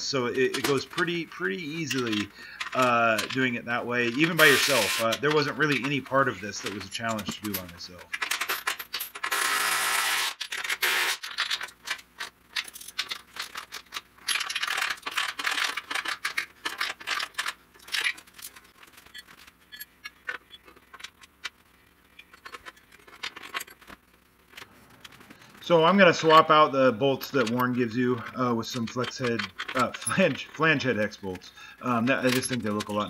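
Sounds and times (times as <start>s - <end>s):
metal tools and bolts rattling: 0.0s - 9.3s, 11.2s - 33.0s.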